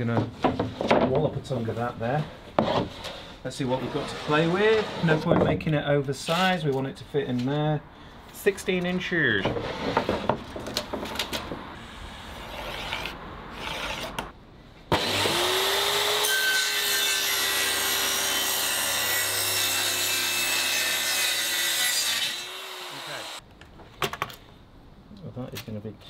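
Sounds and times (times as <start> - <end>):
circular saw cutting plywood: 15.0 - 23.4.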